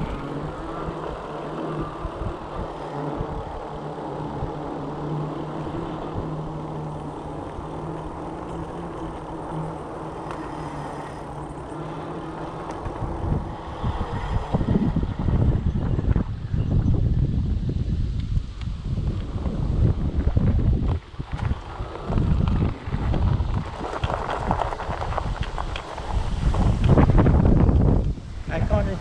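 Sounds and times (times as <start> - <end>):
electric motor hum: 0.0 - 28.9
tyre and air noise: 0.0 - 29.0
wind buffeting microphone: 0.0 - 29.0.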